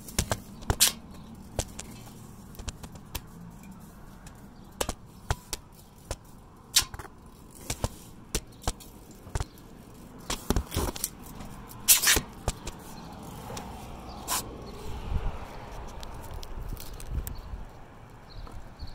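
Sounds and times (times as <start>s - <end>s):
scraping rubs: 0.0s - 14.9s.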